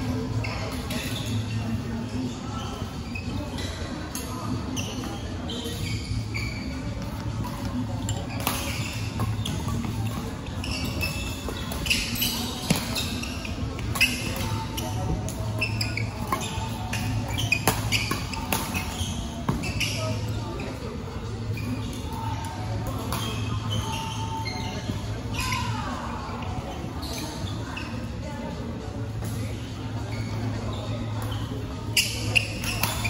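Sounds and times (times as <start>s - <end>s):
sneakers squeaking on court floor: 0.0s - 25.8s, 26.4s - 33.0s.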